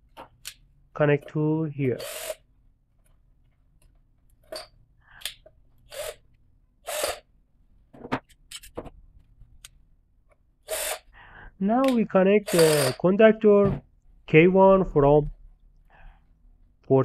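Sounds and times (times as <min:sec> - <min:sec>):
cordless drill-driver: 0:02.0 - 0:02.4, 0:05.9 - 0:06.2, 0:06.8 - 0:07.3, 0:10.6 - 0:11.1, 0:12.4 - 0:13.0.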